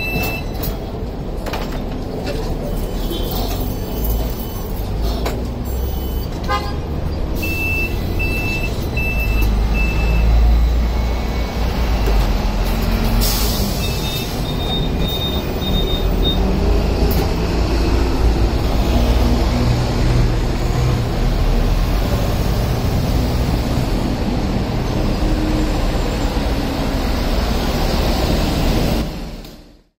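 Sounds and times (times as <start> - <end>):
short electronic beeps: 0.0 - 0.6, 7.4 - 11.5, 13.8 - 16.5
low rumble of trams and traffic: 0.0 - 29.9
higher beeps: 7.4 - 10.4.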